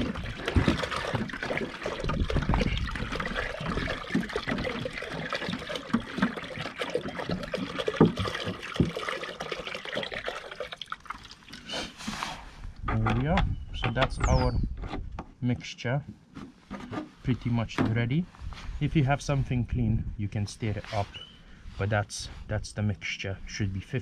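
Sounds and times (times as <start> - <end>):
water pouring with small splashes: 0.0 - 12.2.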